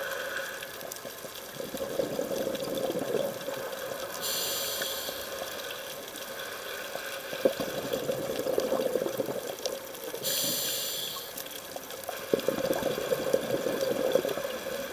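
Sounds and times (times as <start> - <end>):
regulator hissing inhale: 0.0 - 0.8, 3.9 - 7.6, 10.2 - 11.4
bubbling exhaled air: 1.5 - 5.6, 7.3 - 11.4, 12.1 - 14.9.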